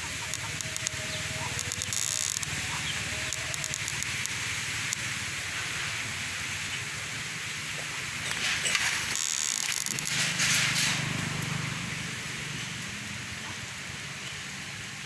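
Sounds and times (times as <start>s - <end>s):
steady hiss: 0.0s - 15.0s
sharp clicks: 0.2s - 2.5s, 3.2s - 5.0s.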